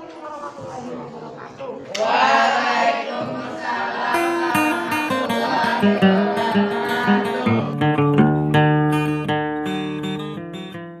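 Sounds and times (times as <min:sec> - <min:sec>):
acoustic guitar music: 0:03.6 - 0:11.0.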